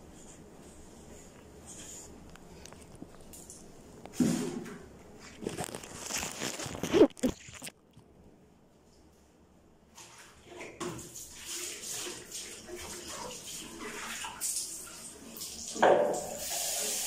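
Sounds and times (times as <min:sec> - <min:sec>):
tap running water into bucket: 0:10.6 - 0:17.0.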